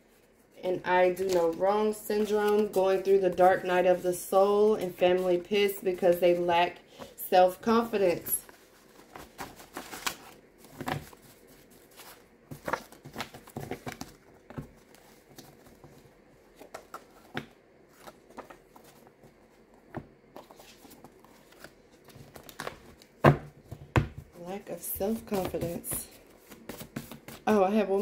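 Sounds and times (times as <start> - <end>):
cards rustling and flicking: 8.4 - 23.8.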